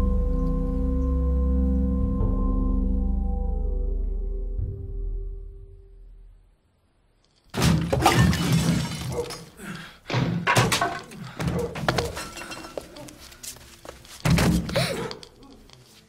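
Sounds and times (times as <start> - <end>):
glass breaking: 7.5 - 9.6, 10.2 - 11.2.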